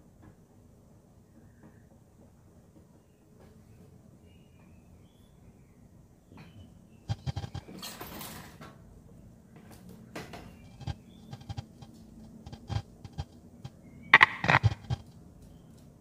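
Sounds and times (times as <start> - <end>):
scraping rustle: 7.1 - 8.6, 10.4 - 13.4, 14.2 - 15.1.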